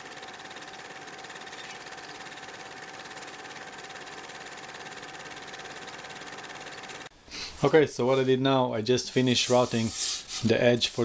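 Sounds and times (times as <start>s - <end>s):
electric router whining: 0.0s - 7.1s.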